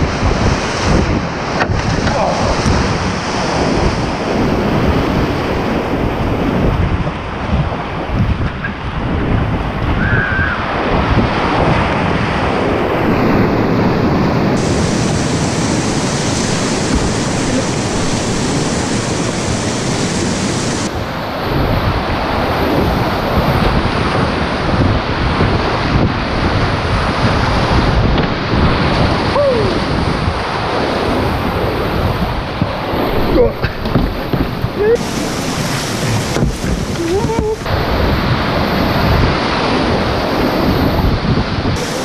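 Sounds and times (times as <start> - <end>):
whitewater rapid rushing: 0.0 - 42.0
wind noise on microphone: 0.0 - 42.0
water splashing: 14.2 - 21.4, 25.6 - 42.0.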